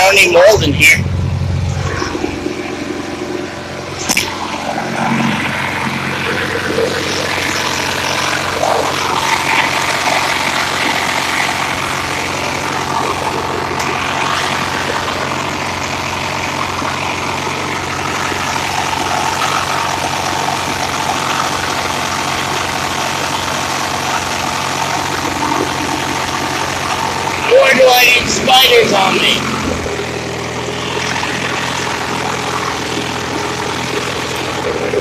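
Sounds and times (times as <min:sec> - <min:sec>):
lawn tractor engine running: 0:00.0 - 0:35.0.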